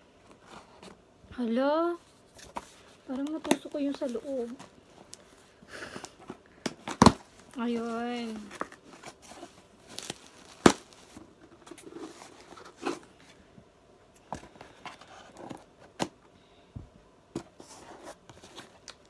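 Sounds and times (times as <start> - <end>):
packing tape tearing: 9.9 - 11.0.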